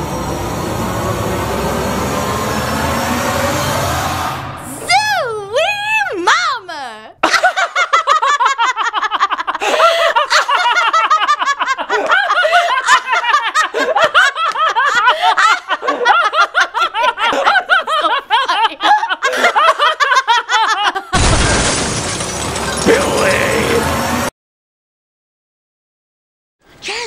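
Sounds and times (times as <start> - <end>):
woman laughing loudly: 7.2 - 21.2.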